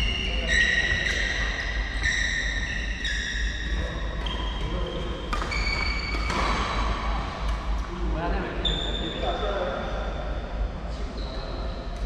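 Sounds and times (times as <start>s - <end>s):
racket hitting shuttlecock: 5.3s - 7.6s.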